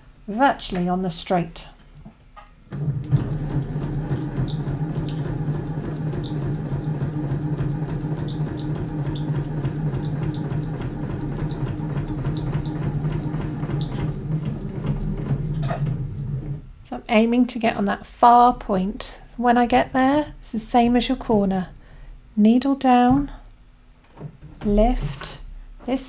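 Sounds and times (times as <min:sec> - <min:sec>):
sewing machine running: 0:02.8 - 0:16.6.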